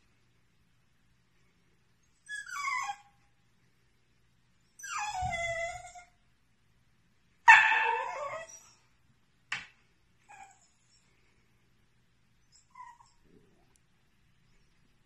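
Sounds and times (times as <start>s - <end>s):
puppy whimpering: 2.2s - 3.1s, 4.8s - 6.1s, 7.9s - 8.8s, 12.5s - 13.4s
puppy sharp yip: 7.5s - 8.6s
puppy yelping bark: 7.5s - 8.8s.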